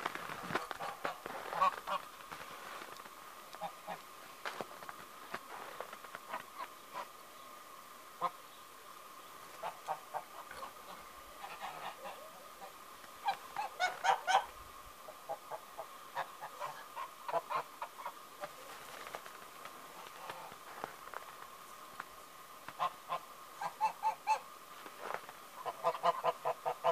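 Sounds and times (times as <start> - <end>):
geese honking: 0.6 - 2.5, 9.6 - 19.1, 22.7 - 26.9.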